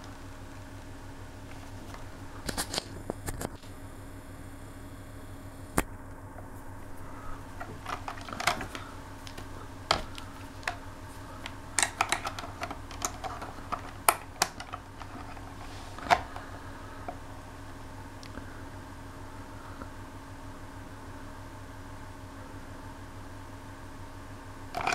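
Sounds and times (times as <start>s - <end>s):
faint steady hum: 0.0s - 24.9s
test probes clicking on plastic: 11.4s - 16.5s.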